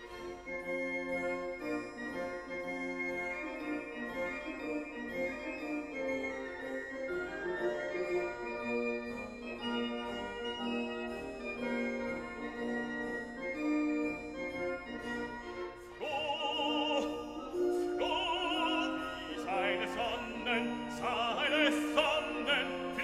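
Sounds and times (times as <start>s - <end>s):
keyboard chords: 0.0s - 23.0s
operatic singing voice: 16.0s - 23.0s.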